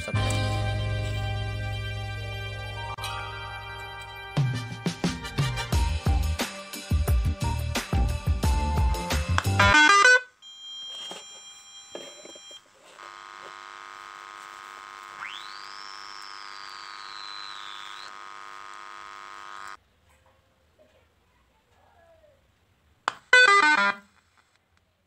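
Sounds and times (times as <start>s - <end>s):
buzzy electronic tone: 13.0s - 19.8s.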